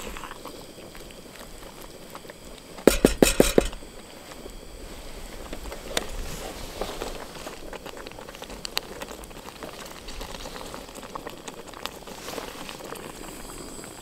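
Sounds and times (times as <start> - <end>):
stew simmering with pops: 0.0 - 14.0.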